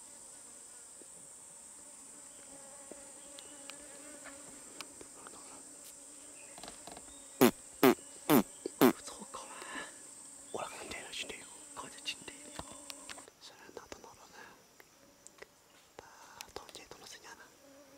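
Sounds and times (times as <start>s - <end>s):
high-pitched insect drone: 6.4s - 13.3s.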